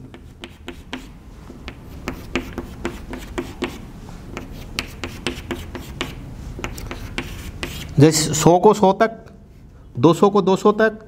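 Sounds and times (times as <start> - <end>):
chalk tapping on blackboard: 0.0 - 8.0.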